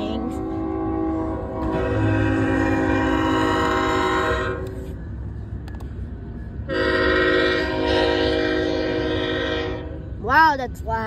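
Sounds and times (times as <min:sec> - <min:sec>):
locomotive air horn: 0:00.0 - 0:05.0, 0:06.7 - 0:10.1
freight train rumbling: 0:00.0 - 0:11.0.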